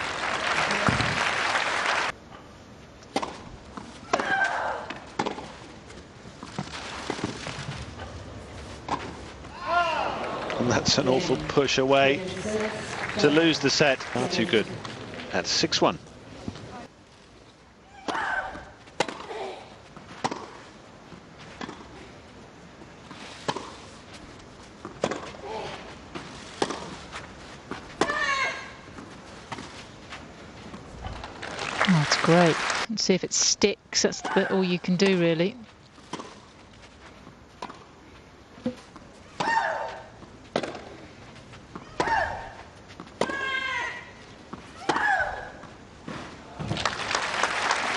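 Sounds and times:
tennis racket hitting ball: 4.0 - 5.6, 18.1 - 19.4, 20.2 - 20.6, 24.8 - 25.8, 26.5 - 27.0, 27.9 - 28.4, 36.1 - 36.5, 39.4 - 41.0, 41.8 - 43.8
tennis ball struck with rackets: 5.2 - 5.4, 40.5 - 41.0.

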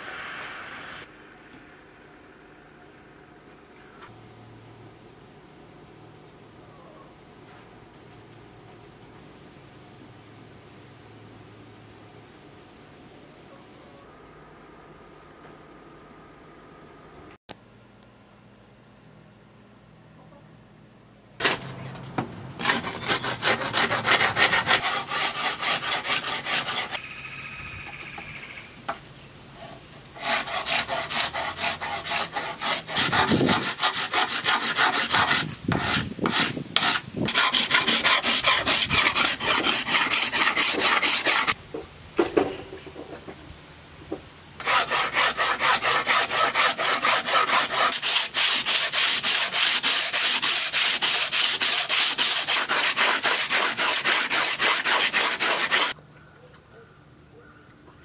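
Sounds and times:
rasping and sanding wood: 21.4 - 27.0, 29.6 - 41.6, 44.6 - 56.0.

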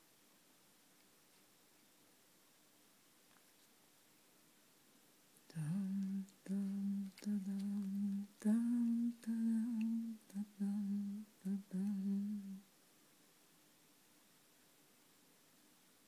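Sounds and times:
person humming: 5.5 - 12.7.

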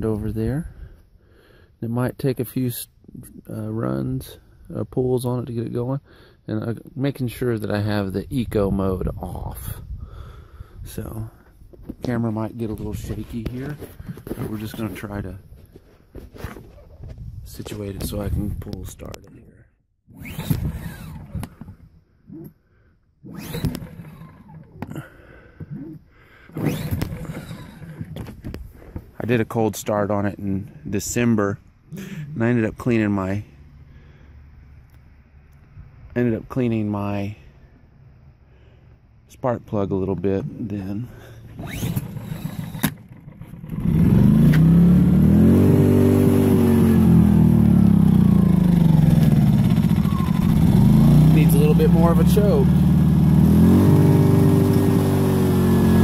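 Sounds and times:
generator recoil starter pulled: 20.1 - 22.6, 23.2 - 29.2, 41.2 - 45.2, 47.1 - 56.0
engine cranking: 20.1 - 29.0, 41.2 - 45.5, 46.4 - 56.0.

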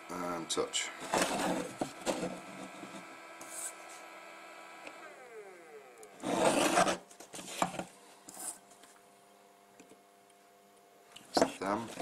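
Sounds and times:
electrical hum: 0.0 - 12.0
scratchy rubbing and handling: 1.0 - 4.0, 6.2 - 8.9.

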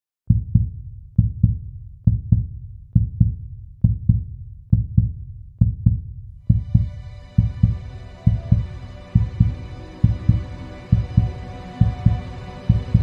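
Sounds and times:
heartbeat thuds: 0.3 - 13.0
music bed of held tones: 6.5 - 13.0.

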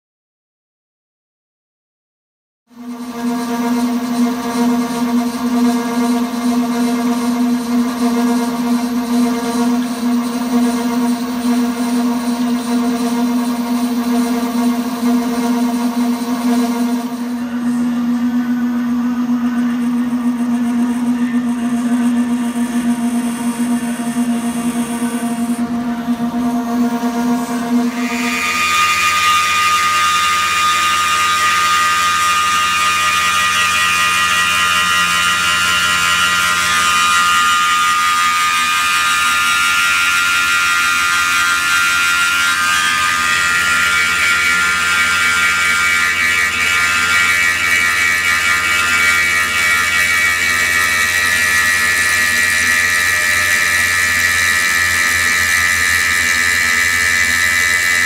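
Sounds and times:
milling machine high-pitched whine: 2.7 - 58.0.

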